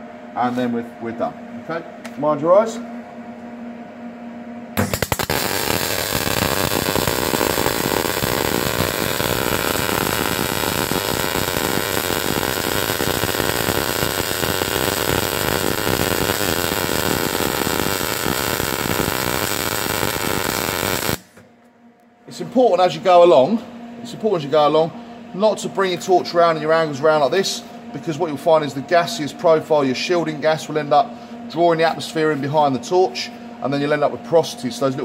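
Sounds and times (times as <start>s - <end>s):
welding arc crackling: 4.8s - 21.4s.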